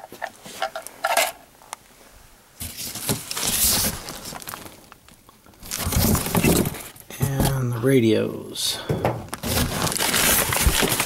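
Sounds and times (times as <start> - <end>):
cables shifting in cardboard box: 2.6 - 5.0, 5.6 - 7.6, 9.0 - 11.0
packing paper crinkling: 2.6 - 7.0, 9.3 - 11.0.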